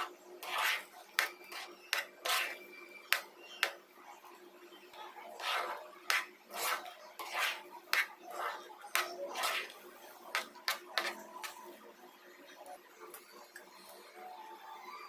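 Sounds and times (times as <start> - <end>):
metal spatula scraping pan: 0.0 - 3.8, 5.1 - 11.7.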